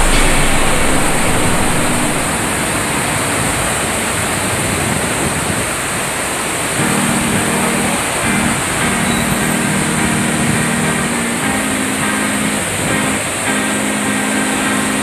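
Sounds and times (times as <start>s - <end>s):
low steady hum: 0.0s - 2.4s
fountain water splashing: 0.0s - 15.0s.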